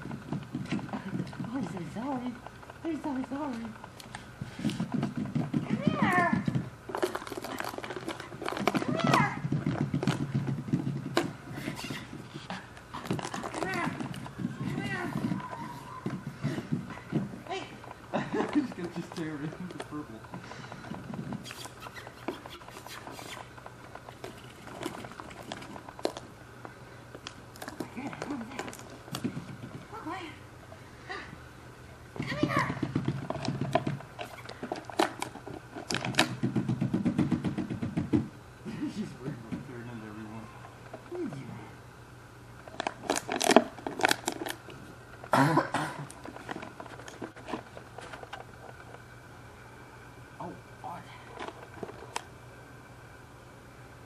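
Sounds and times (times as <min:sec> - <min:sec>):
plastic bottle crinkling: 0:42.6 - 0:45.3, 0:46.0 - 0:49.0.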